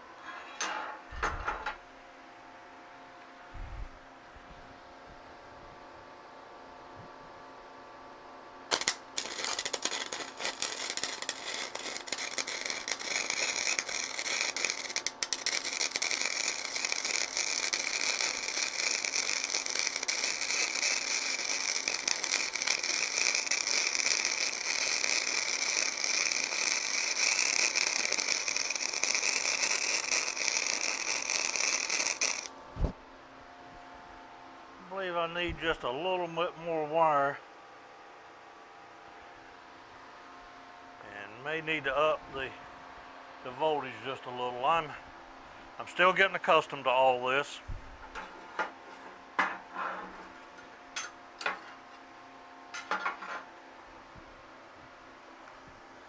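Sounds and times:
welding arc crackling: 8.7 - 32.6.

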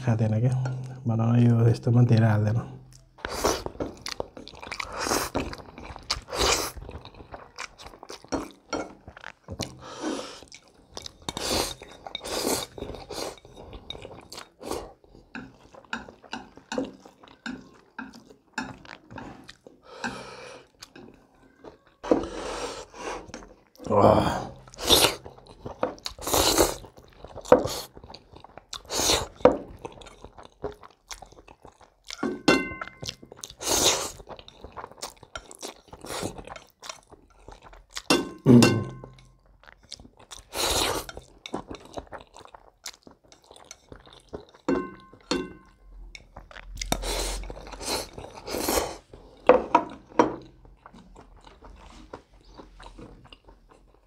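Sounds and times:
chewing: 2.8 - 23.9, 24.5 - 54.0
chopsticks clinking: 32.1 - 33.3, 38.0 - 39.4, 43.4 - 47.0.

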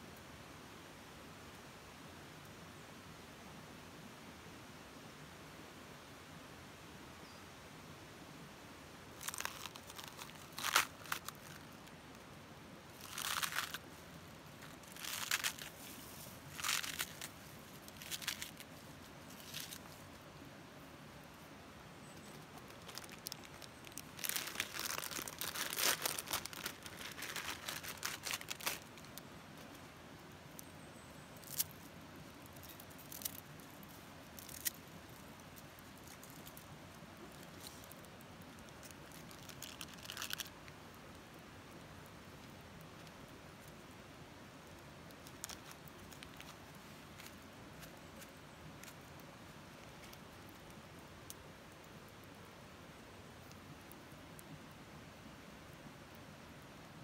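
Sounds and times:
crinkling and rustling: 9.2 - 12.2, 12.9 - 20.2, 22.2 - 29.8, 31.4 - 40.6, 44.7 - 50.7.

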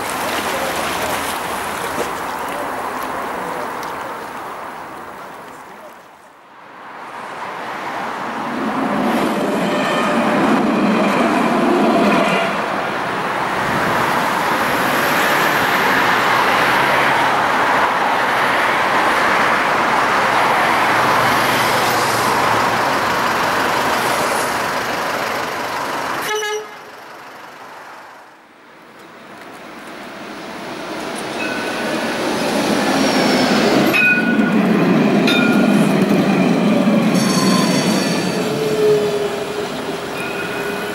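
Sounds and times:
street traffic noise: 0.0 - 40.9
electric tram passing: 6.8 - 40.9
high tram whine: 30.8 - 40.9.

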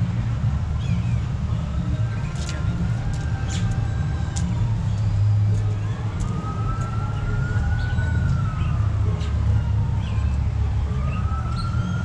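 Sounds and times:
emergency vehicle siren wailing: 0.6 - 12.0.

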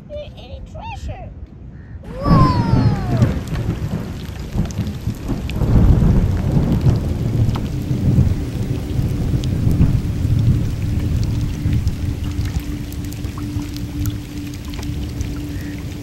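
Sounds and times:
rolling thunder: 2.0 - 16.0
heavy rain falling: 2.1 - 16.0
steady low tone: 2.1 - 16.0.

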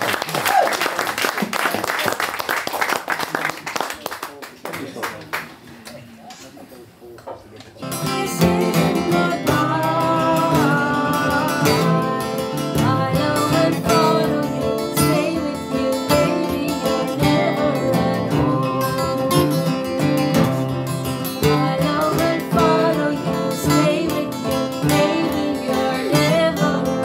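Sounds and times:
acoustic guitars strummed folk tune: 7.8 - 27.0.

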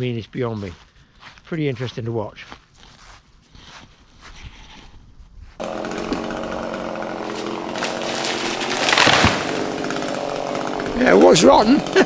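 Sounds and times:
chainsaw cutting deadwood: 5.6 - 12.0.

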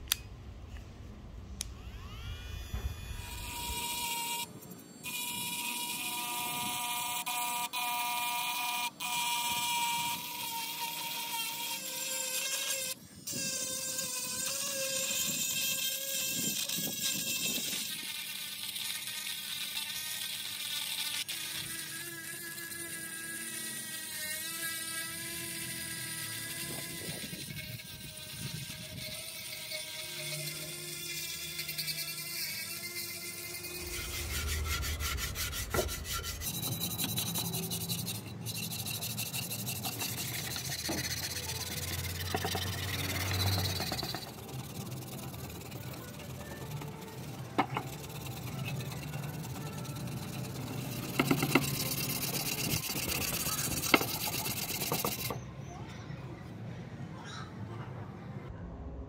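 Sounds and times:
power tool whining: 1.6 - 55.4
abrasive rubbing: 21.3 - 55.4
low hum: 33.0 - 52.3, 57.9 - 59.0.

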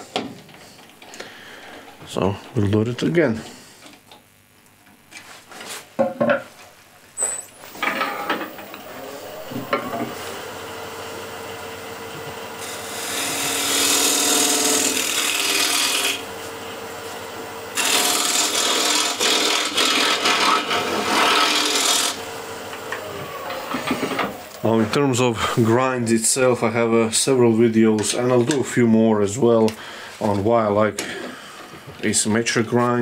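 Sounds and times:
wood lathe humming: 7.6 - 25.4
gouge cutting wood shavings: 12.6 - 16.2, 17.8 - 22.2.

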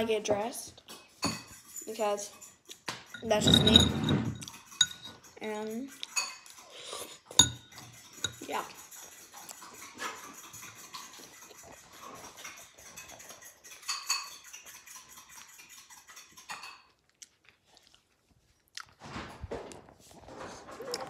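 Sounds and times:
spoon and dishes clinking: 0.9 - 11.6, 12.2 - 17.0.

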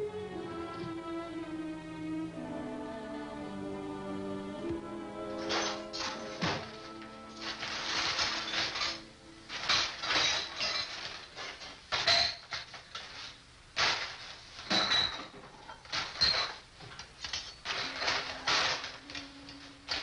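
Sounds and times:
dishes and utensils clattering: 5.4 - 20.0.

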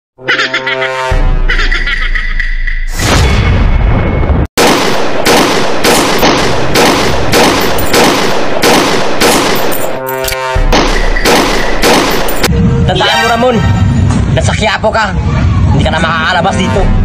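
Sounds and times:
heavy blast: 3.0 - 9.6
string of gunshots: 4.6 - 9.7, 10.7 - 12.5.

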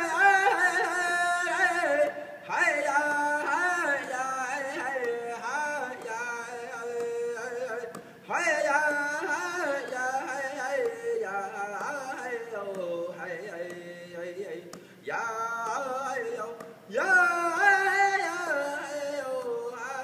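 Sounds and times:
person singing a cappella: 0.0 - 20.0.

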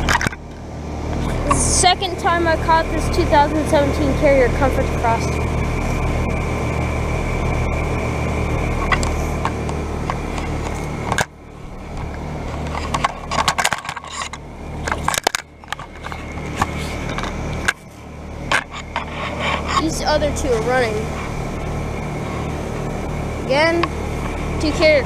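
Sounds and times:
heat pump humming: 0.0 - 25.0
scraping and rustling of handling: 10.2 - 21.6.

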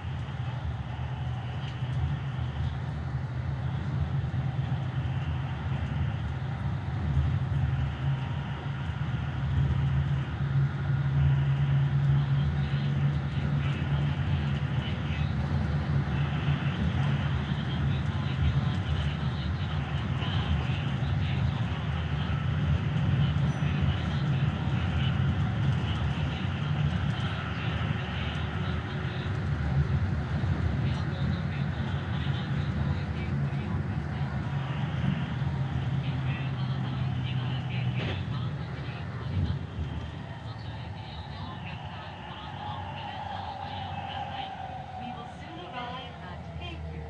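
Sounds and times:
train wheels rumbling on rails: 0.0 - 47.0.

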